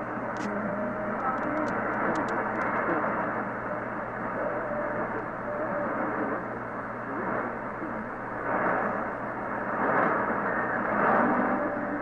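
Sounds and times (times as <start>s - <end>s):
radio static hiss: 0.0s - 12.0s
faint broadcast voice: 0.3s - 9.0s.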